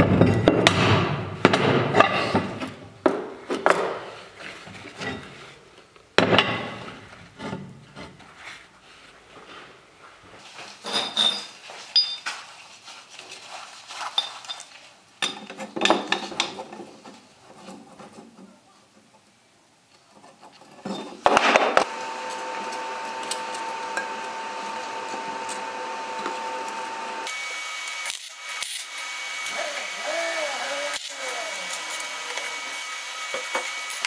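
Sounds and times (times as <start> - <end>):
machine humming: 21.8 - 34.0.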